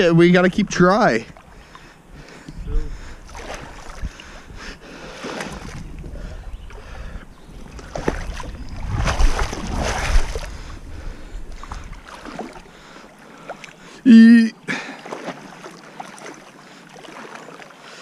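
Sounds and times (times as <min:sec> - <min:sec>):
water splashing from wading: 0:03.0 - 0:06.0, 0:06.7 - 0:14.0, 0:14.6 - 0:18.0.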